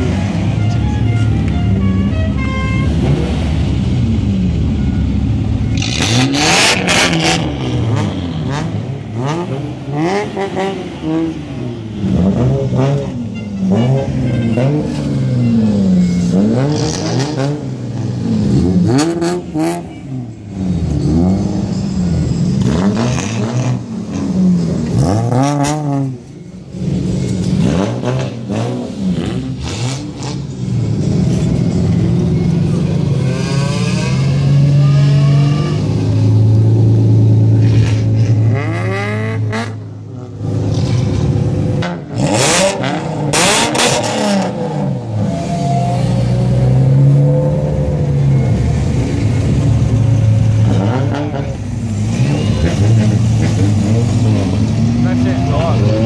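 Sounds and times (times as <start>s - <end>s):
car engines revving: 0.0s - 56.0s.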